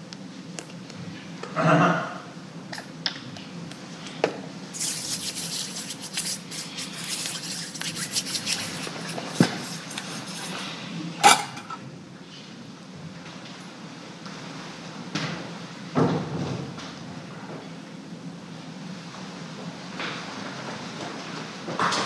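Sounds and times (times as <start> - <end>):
hands rustling and rubbing: 4.8 - 11.4.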